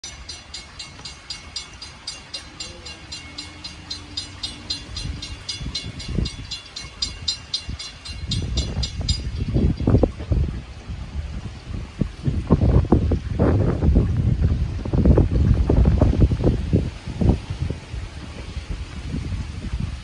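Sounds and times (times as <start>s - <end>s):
railroad crossing bell ringing: 0.0s - 9.7s
wind buffeting microphone: 0.0s - 20.0s.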